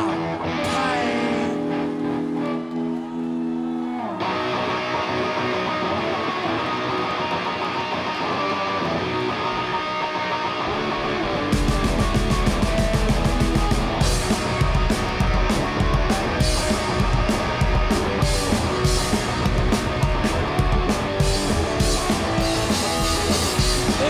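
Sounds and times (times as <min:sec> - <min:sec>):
electric guitar: 0:00.0 - 0:24.0
drums and cymbals beat: 0:11.6 - 0:24.0.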